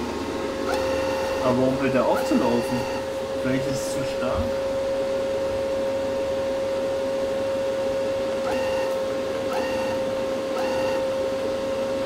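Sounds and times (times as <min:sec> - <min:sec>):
welder humming: 0:00.0 - 0:12.0
wire-feed motor whine: 0:00.0 - 0:12.0.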